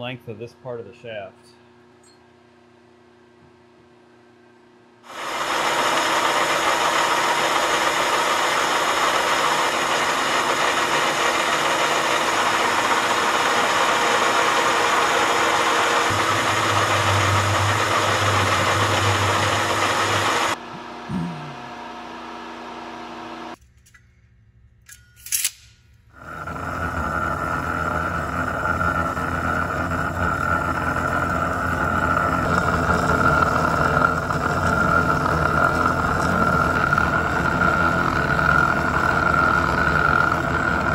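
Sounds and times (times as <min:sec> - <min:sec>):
circular saw cutting steel bar: 0:05.1 - 0:20.6, 0:26.2 - 0:40.9
metal lathe cutting: 0:05.1 - 0:20.6, 0:26.2 - 0:40.9.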